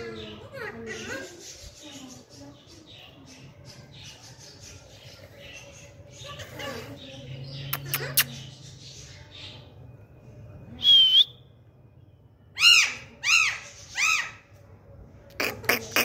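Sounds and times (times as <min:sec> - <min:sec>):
parrot screeching calls: 0:12.6 - 0:14.5
parrot squawking: 0:12.6 - 0:14.5, 0:15.3 - 0:16.0.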